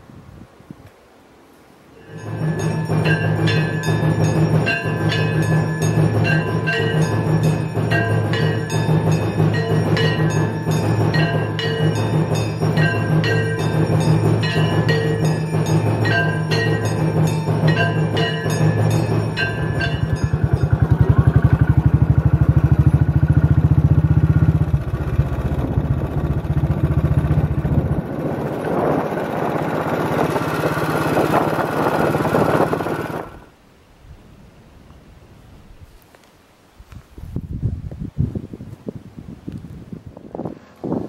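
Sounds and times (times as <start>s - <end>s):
ringing bell-like tones: 2.0s - 23.6s
motorcycle engine running: 2.0s - 33.5s.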